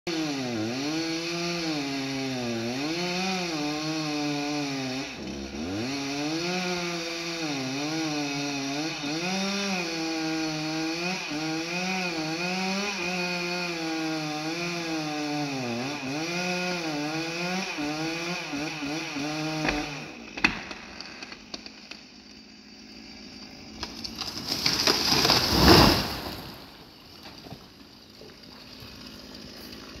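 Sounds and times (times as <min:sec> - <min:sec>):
chainsaw revving: 0:00.1 - 0:30.0
wood cracking: 0:18.9 - 0:22.5, 0:23.2 - 0:30.0
tree limb crashing through branches: 0:23.8 - 0:27.6.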